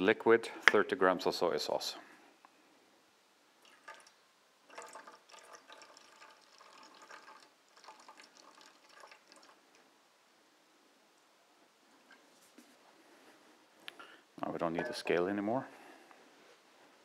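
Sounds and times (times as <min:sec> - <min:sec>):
sauce trickling into steel bowl: 0:03.6 - 0:09.8.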